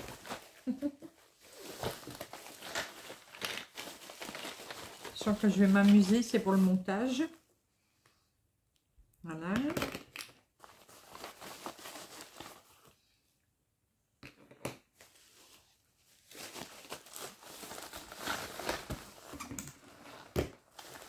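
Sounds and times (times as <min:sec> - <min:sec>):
plastic packaging crinkling: 0:00.0 - 0:06.9, 0:10.0 - 0:12.9, 0:16.2 - 0:21.0.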